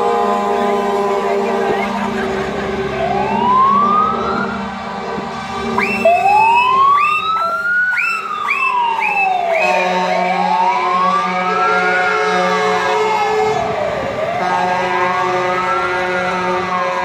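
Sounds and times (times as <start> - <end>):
siren wailing: 0.0 - 17.0
truck engines running: 0.0 - 17.0
siren yelps: 0.4 - 4.7, 5.7 - 14.7.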